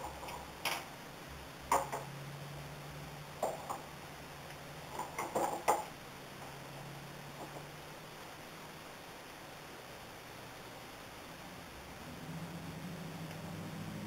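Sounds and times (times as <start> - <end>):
wool combs tapping and clicking: 0.0 - 0.9, 1.7 - 2.2, 3.4 - 6.5.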